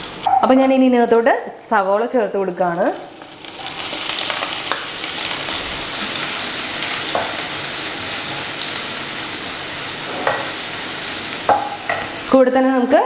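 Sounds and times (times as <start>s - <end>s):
onions sizzling in oil: 2.5s - 12.9s.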